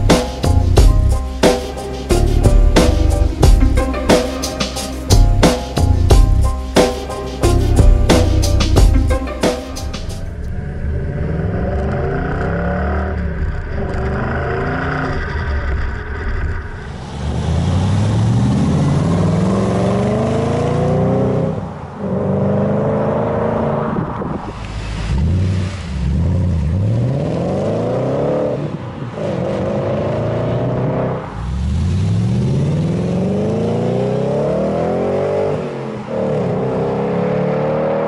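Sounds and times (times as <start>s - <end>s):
car engine accelerating through gears: 9.8s - 38.0s.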